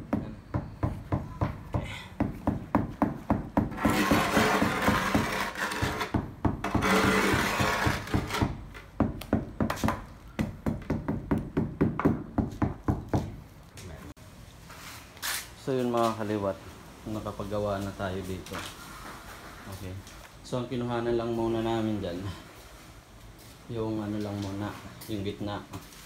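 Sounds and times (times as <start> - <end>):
trowel scraping adhesive: 3.7 - 8.5.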